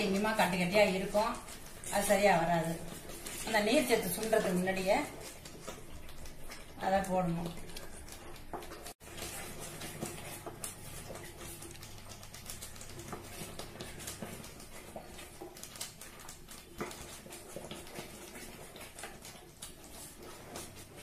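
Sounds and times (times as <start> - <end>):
wooden spatula scraping a pot: 0.0 - 11.8.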